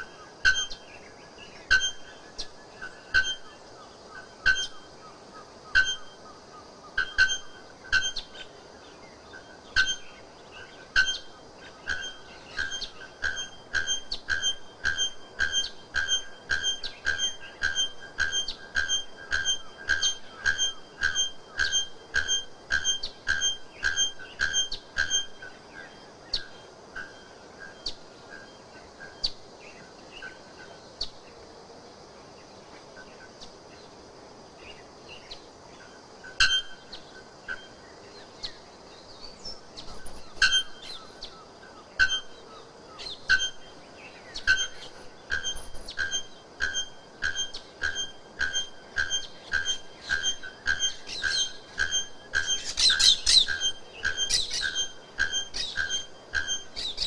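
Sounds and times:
bird calling sharp metallic notes: 0:00.0 - 0:00.9, 0:01.6 - 0:03.6, 0:04.2 - 0:04.9, 0:05.7 - 0:06.2, 0:06.9 - 0:08.5, 0:09.7 - 0:10.2, 0:10.9 - 0:29.3, 0:36.2 - 0:37.8, 0:39.2 - 0:57.0.

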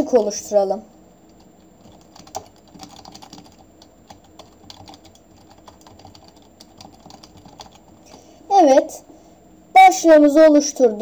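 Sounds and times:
typing on computer keyboard: 0:01.3 - 0:08.2.

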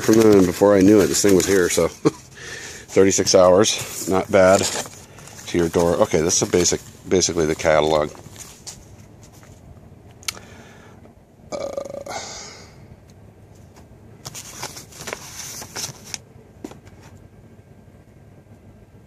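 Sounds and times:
paper packaging rustling and crinkling: 0:00.0 - 0:09.7, 0:13.7 - 0:17.2.

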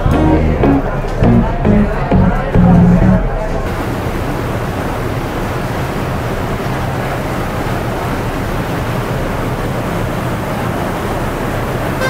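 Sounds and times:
low boat engine hum: 0:00.0 - 0:12.0
water and wind rushing: 0:03.6 - 0:12.0.

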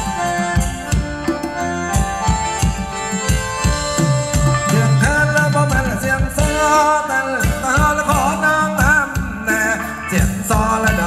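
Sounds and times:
drum beat: 0:00.0 - 0:06.8, 0:07.4 - 0:11.0
held melody notes: 0:00.0 - 0:08.4.

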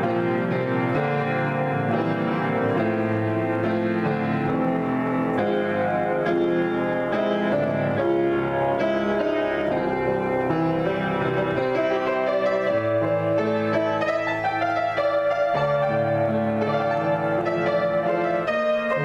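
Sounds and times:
piano improvisation: 0:00.0 - 0:19.0.

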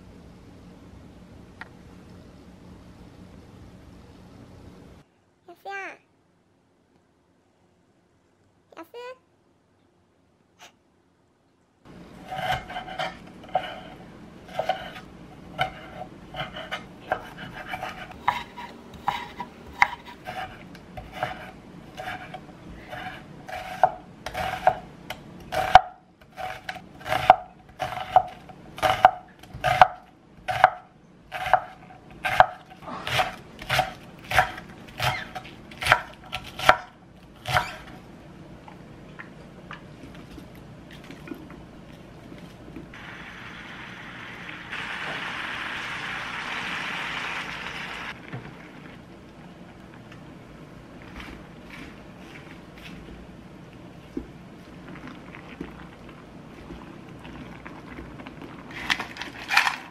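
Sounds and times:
knife chopping on wooden board: 0:15.6 - 0:24.8, 0:25.5 - 0:37.8.

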